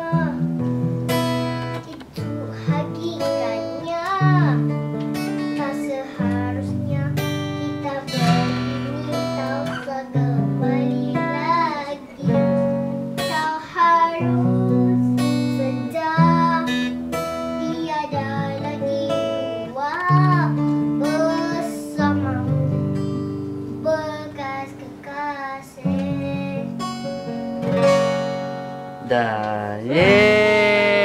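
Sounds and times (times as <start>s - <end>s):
person singing: 0.0s - 0.5s, 5.5s - 17.0s, 29.0s - 31.0s
acoustic guitar strumming chords: 0.0s - 31.0s.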